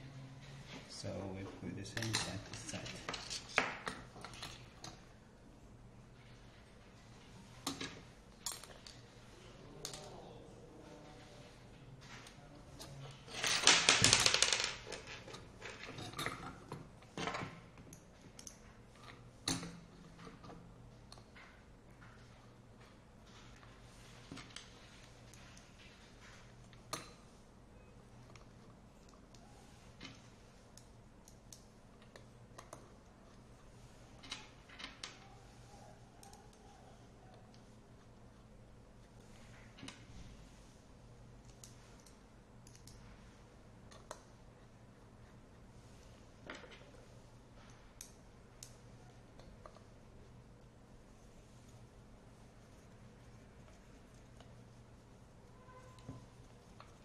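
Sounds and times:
metal tools rattling on a table: 0:12.8 - 0:17.6.

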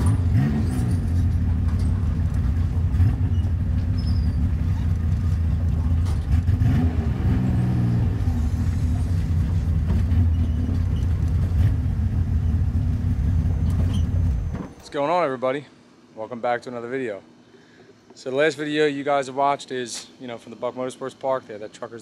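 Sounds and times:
truck engine rumbling: 0:00.0 - 0:15.1.

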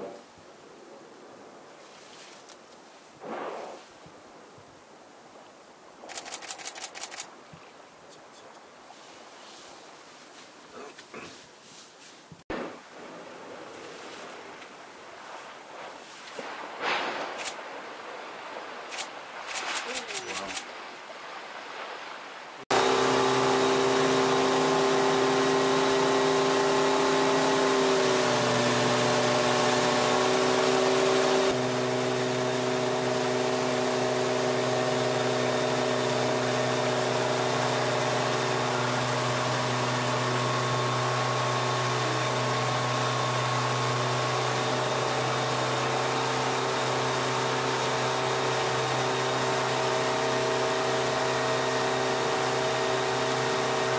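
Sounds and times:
motorboat engine running: 0:06.1 - 0:07.2, 0:22.7 - 0:53.9
water rushing in boat wake: 0:12.5 - 0:53.9.

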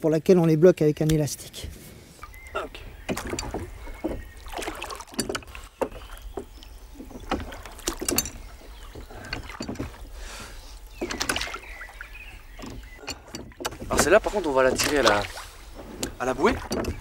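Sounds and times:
oars splashing through water: 0:02.1 - 0:17.0
oars knocking in metal oarlocks: 0:02.2 - 0:17.0.

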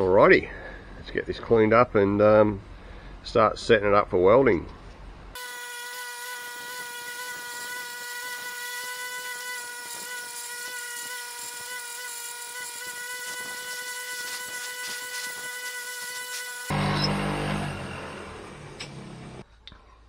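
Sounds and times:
wire wheel whining: 0:07.3 - 0:19.4.

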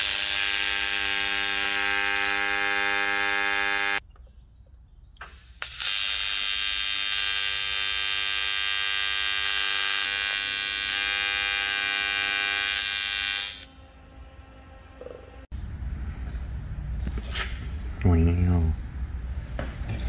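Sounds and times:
welding arc buzzing with hiss: 0:00.0 - 0:04.0, 0:05.4 - 0:13.8.

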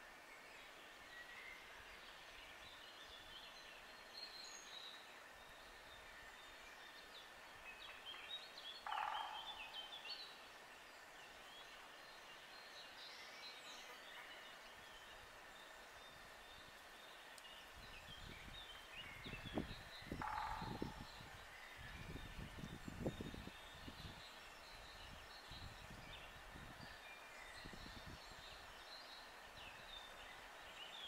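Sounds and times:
faint birdsong chirps: 0:00.0 - 0:31.0
rapidly pulsed bird call: 0:08.8 - 0:10.0, 0:19.7 - 0:21.2.

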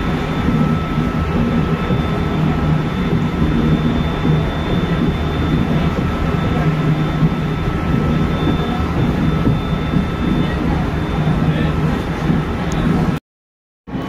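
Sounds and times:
faint high whine: 0:00.0 - 0:13.2
steady low hum: 0:00.0 - 0:13.2
train wheels rumbling on rail: 0:00.0 - 0:13.2.

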